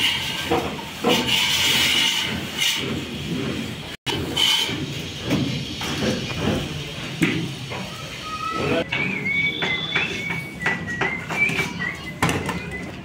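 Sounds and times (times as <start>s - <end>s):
tools scraping mortar: 0.0s - 6.7s
tools knocking: 8.9s - 12.6s.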